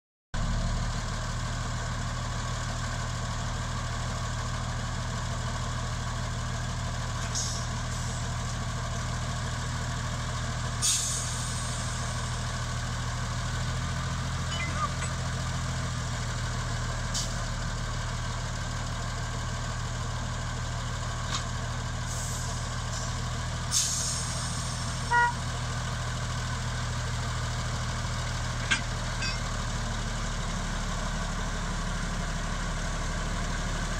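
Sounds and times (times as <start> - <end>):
diesel locomotive idling: 0.4 - 33.9
brief high tone: 14.4 - 15.3, 25.1 - 25.4, 29.2 - 29.5.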